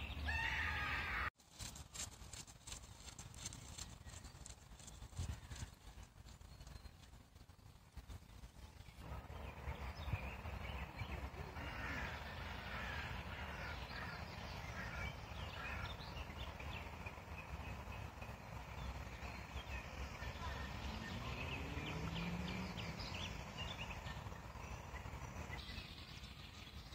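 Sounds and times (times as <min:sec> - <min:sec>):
low outdoor rumble: 0:00.0 - 0:26.9
birds chirping and calling: 0:09.1 - 0:26.9.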